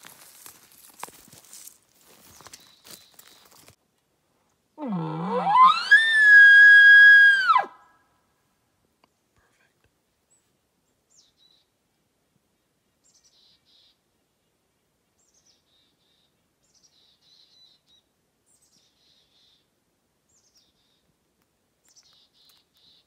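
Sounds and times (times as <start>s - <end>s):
songbird singing trill: 21.8s - 23.0s.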